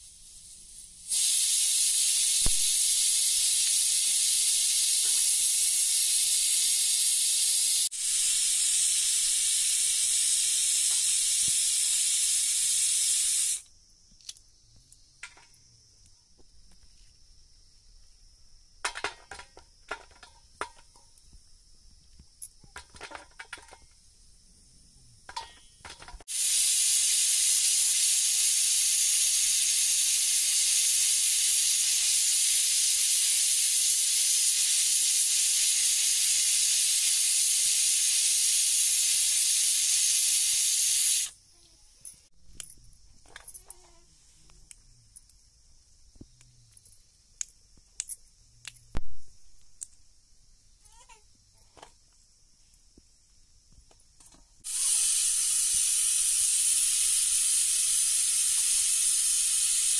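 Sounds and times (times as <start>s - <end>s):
high-pitched hiss: 0.0s - 59.9s.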